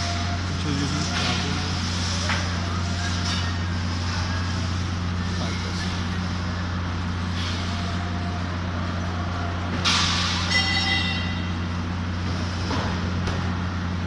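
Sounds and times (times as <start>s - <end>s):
air brake hiss and squeal: 7.2s - 8.5s, 9.8s - 11.7s.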